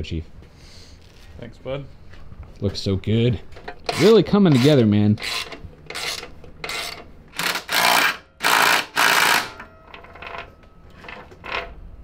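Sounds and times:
drive chain scraping: 0:03.7 - 0:11.8.

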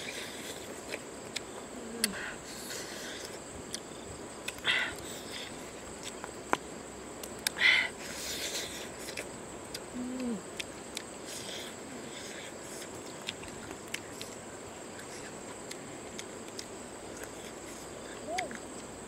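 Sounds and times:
insects droning: 0:00.0 - 0:19.0
eating clicks: 0:09.0 - 0:18.9
low falling hoot-like call: 0:18.2 - 0:18.6.

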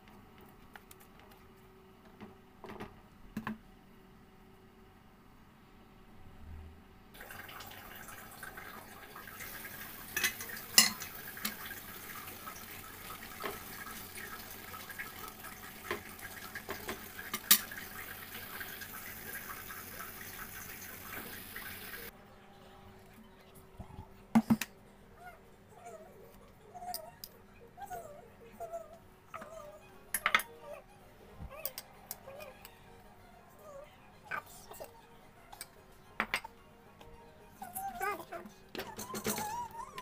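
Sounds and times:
sauce boiling in a pot: 0:07.2 - 0:22.1.

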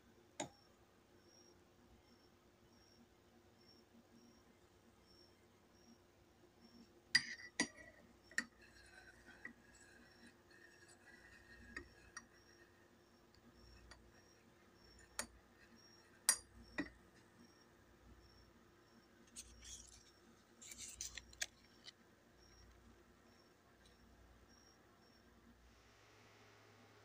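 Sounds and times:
metal spoon clinking in ceramic mug: 0:07.2 - 0:09.4.

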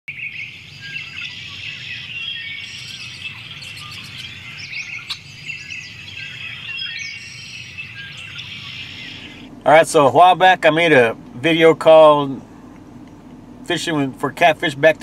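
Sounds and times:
birds chirping and singing: 0:00.1 - 0:09.6
faint low rumble: 0:00.3 - 0:15.0.

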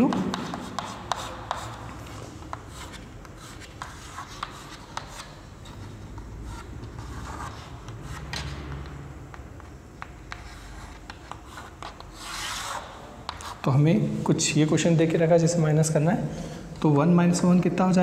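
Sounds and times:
chalk tapping and scratching on chalkboard: 0:00.0 - 0:13.8.

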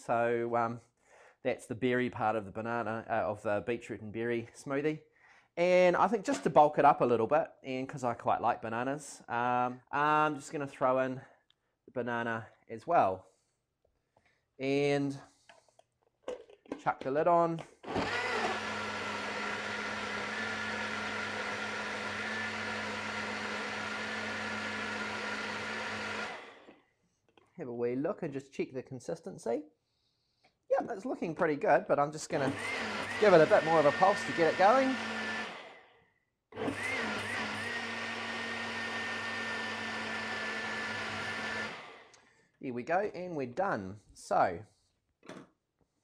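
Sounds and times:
blender motor running: 0:17.8 - 0:26.8, 0:32.4 - 0:35.9, 0:36.6 - 0:42.2.

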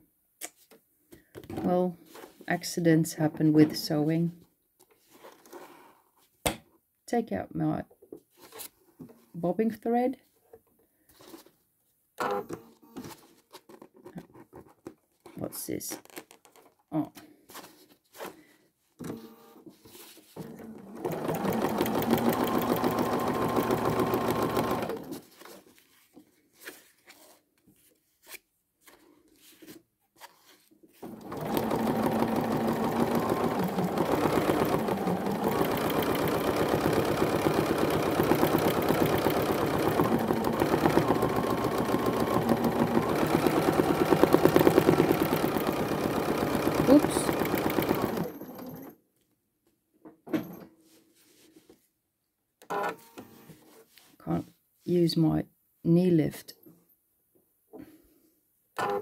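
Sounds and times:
sewing machine stitching: 0:20.4 - 0:25.3, 0:31.0 - 0:49.0.

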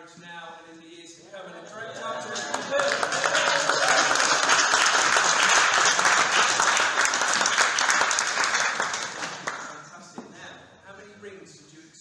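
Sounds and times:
crowd applauding: 0:01.7 - 0:10.0.

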